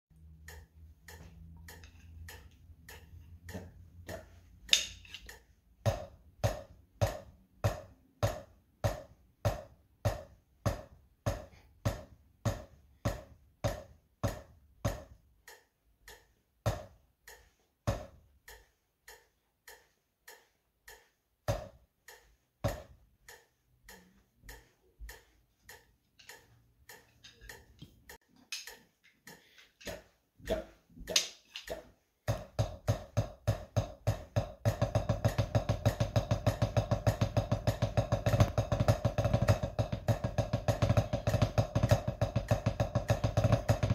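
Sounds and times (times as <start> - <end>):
metronome clicking: 0.1 - 5.6, 13.7 - 30.0
drumstick on practice pad: 0.1 - 43.9.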